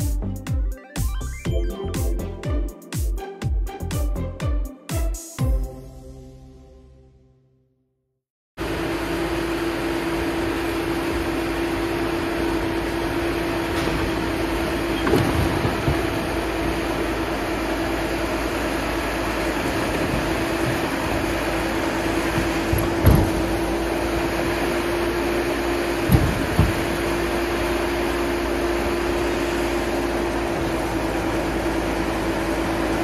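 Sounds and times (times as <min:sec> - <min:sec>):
engine idling: 0:08.8 - 0:33.0.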